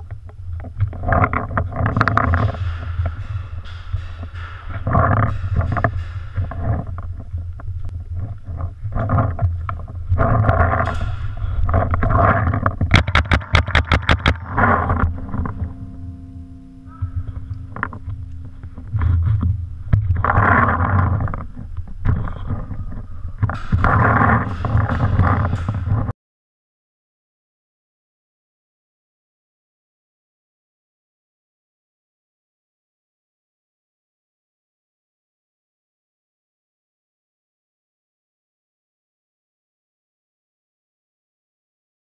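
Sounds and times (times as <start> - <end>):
steady low rumble: 0.0 - 26.1.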